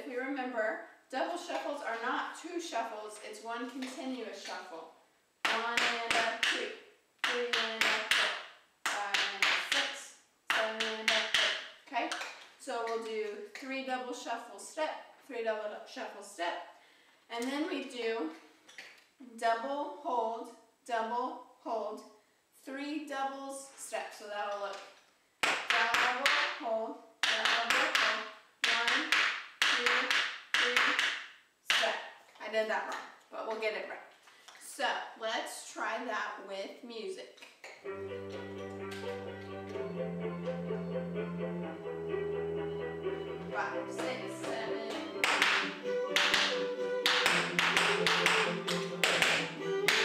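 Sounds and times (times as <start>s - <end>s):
tap shoes on tap board: 10.5s - 12.3s, 27.2s - 31.2s, 44.0s - 50.0s.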